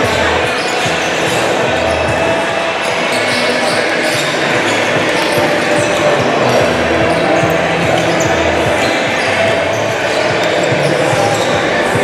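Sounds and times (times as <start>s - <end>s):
echoing sports hall din: 0.0s - 12.0s
basketball bouncing on court floor: 3.1s - 12.0s.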